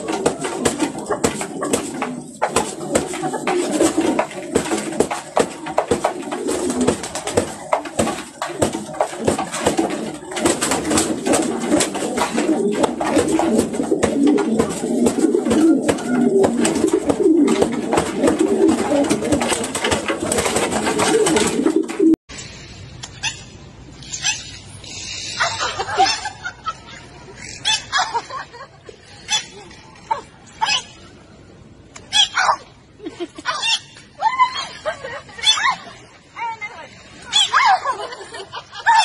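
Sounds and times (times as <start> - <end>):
pigeons cooing: 0.0 - 22.2
wings flapping: 0.0 - 22.2.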